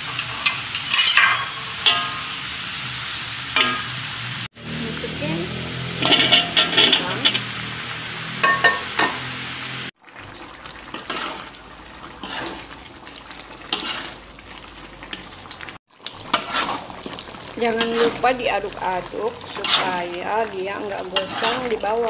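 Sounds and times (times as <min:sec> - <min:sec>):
potatoes clattering into wok: 0:00.0 - 0:02.4, 0:06.0 - 0:07.5
stew simmering: 0:00.0 - 0:22.0
spoon stirring: 0:06.0 - 0:07.5, 0:21.0 - 0:22.0.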